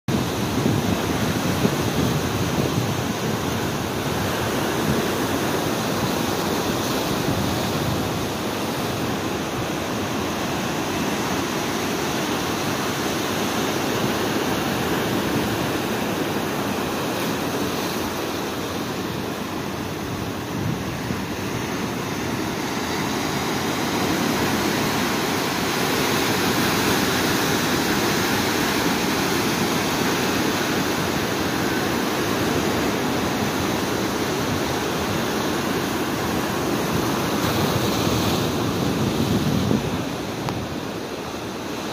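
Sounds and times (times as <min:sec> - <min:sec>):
ocean waves breaking on rocks: 0:00.1 - 0:41.9.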